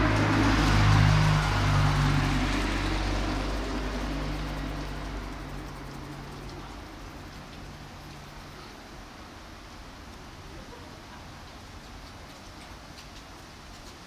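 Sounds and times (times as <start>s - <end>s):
car engine hum: 0.0s - 8.3s.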